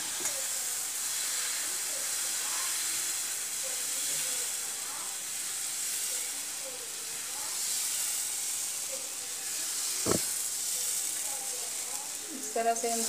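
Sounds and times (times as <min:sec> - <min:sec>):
batter sizzling on hot griddle: 0:00.0 - 0:13.0
sharp knock: 0:10.0 - 0:10.3.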